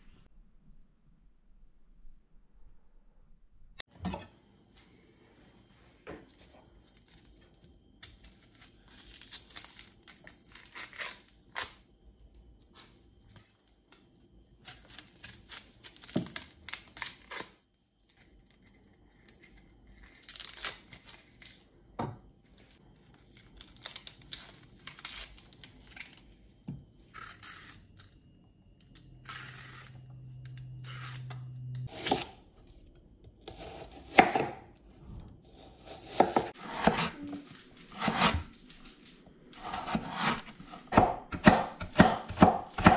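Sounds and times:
onion skin crinkling: 6.7 - 11.9, 12.7 - 21.7, 22.4 - 26.4.

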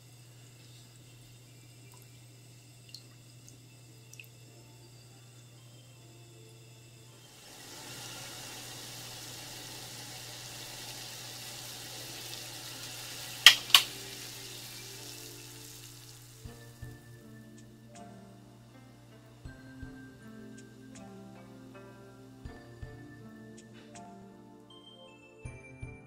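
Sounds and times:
water bubbling at a boil: 0.1 - 4.5, 7.4 - 16.5
music: 3.7 - 26.0
burner knob clicks: 13.4 - 14.0.

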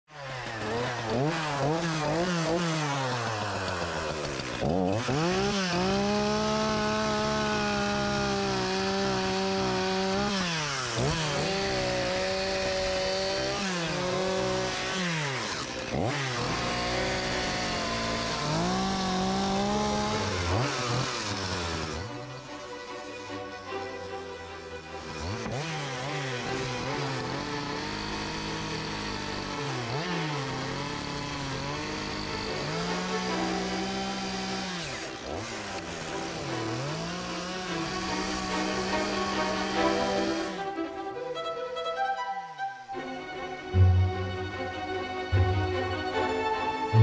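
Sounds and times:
chainsaw revving while cutting wood: 0.1 - 24.0, 24.8 - 40.7, 43.7 - 47.0.

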